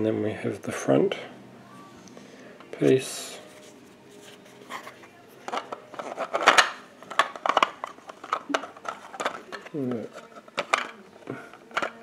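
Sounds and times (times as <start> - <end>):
plastic puzzle pieces clicking: 5.5 - 12.0.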